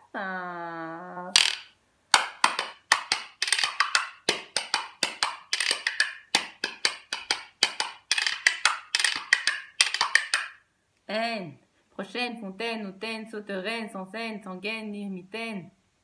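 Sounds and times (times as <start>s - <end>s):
wooden spoons clacking: 1.4s - 10.6s.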